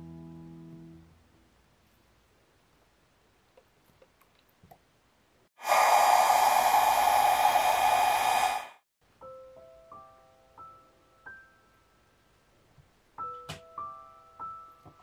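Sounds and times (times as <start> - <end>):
heat gun blowing: 5.6 - 8.8.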